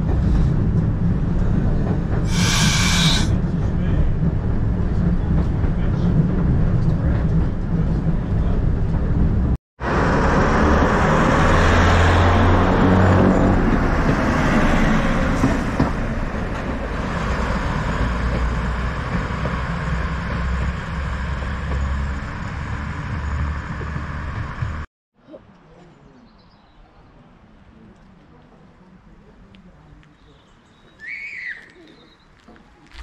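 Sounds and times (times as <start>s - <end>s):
train rumbling: 0.0s - 24.9s.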